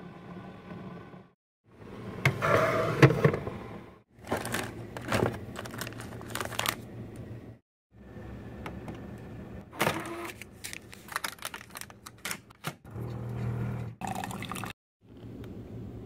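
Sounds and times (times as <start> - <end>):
coffee brewer humming: 12.8 - 14.7.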